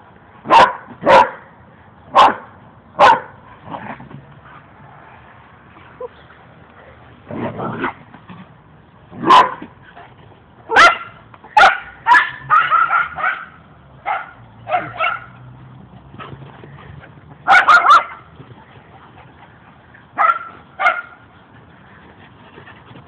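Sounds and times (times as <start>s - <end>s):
small dogs barking and yipping: 0.4s - 1.5s, 2.1s - 3.4s, 9.2s - 9.7s, 10.7s - 18.8s, 19.8s - 21.4s.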